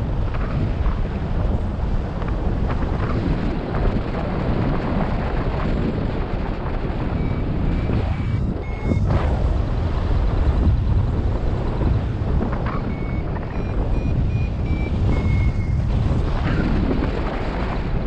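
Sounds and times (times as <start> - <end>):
wind buffeting microphone: 0.0 - 18.0
short high beeps: 12.9 - 15.8.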